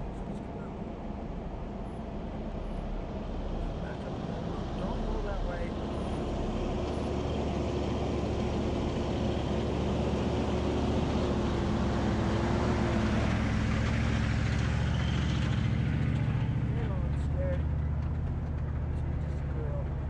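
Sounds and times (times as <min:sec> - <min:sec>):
engine running: 0:00.0 - 0:20.0.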